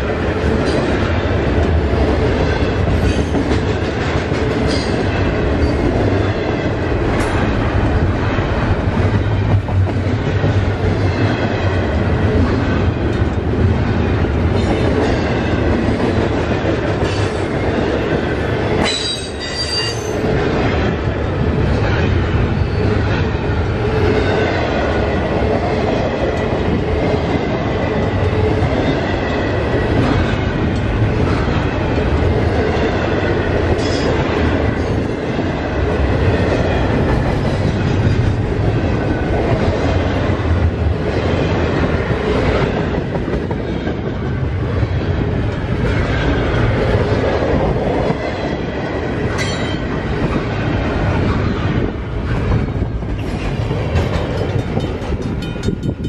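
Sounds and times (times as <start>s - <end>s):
freight train rumbling: 0.0s - 56.0s
wheels clacking over rail joints: 51.0s - 56.0s.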